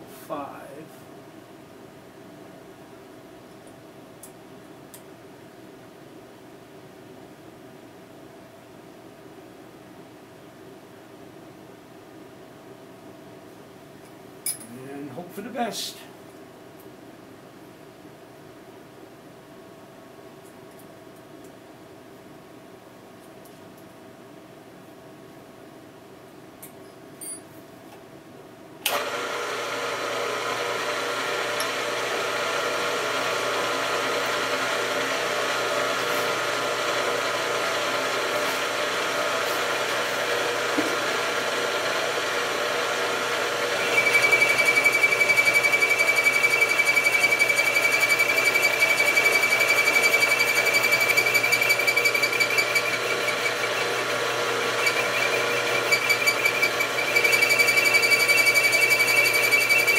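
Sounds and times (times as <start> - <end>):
milling machine motor running: 28.9 - 59.9
high-pitched cutting ringing tone: 43.8 - 53.6, 54.9 - 59.9.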